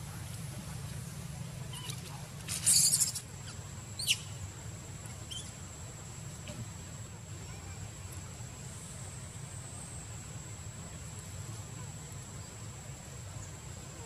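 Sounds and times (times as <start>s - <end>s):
steady low hum: 0.0s - 14.0s
animal squeaks: 1.7s - 3.2s.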